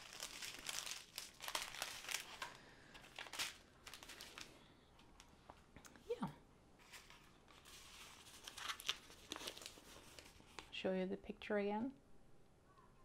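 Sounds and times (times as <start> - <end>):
plastic bags crinkling: 0.0 - 4.6, 6.9 - 10.7.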